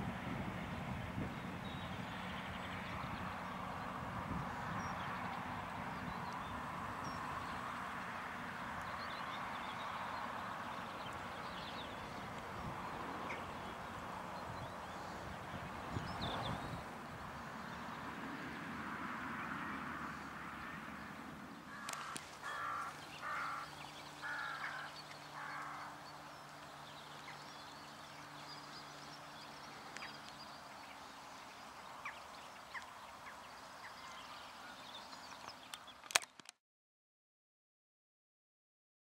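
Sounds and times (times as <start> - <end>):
faint engine hum: 0.0 - 36.0
crow cawing: 21.7 - 26.0.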